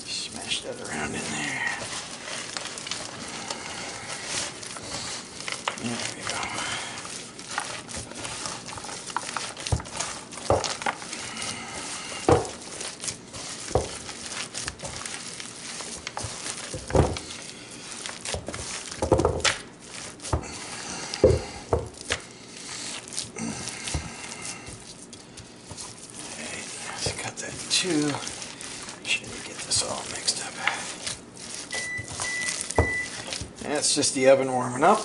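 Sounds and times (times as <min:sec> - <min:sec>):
wet squishing of meat mix: 0:00.0 - 0:35.0.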